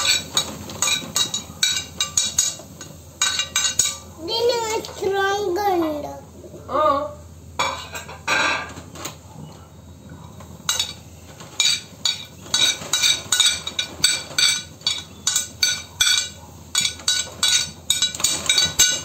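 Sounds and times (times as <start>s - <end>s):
kitchenware clinking on metal pan: 0.0s - 4.1s, 7.6s - 9.1s, 10.7s - 19.0s.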